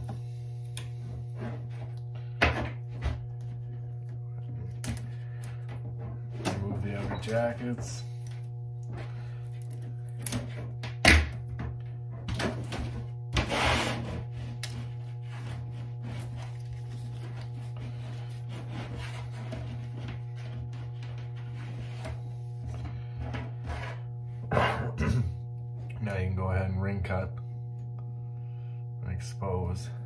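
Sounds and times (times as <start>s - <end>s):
scraping rasp: 13.3s - 22.3s.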